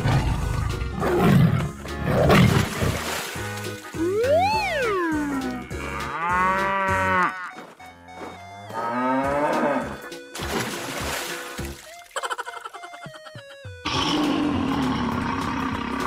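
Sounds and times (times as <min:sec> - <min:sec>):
background music: 0:00.0 - 0:16.0
tone swooping up and down: 0:04.0 - 0:05.7
cow mooing: 0:05.1 - 0:07.5, 0:08.6 - 0:10.1.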